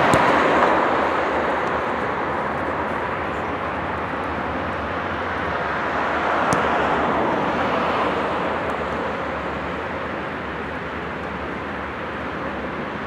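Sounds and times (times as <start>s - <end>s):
outdoor rushing noise: 0.0s - 13.0s.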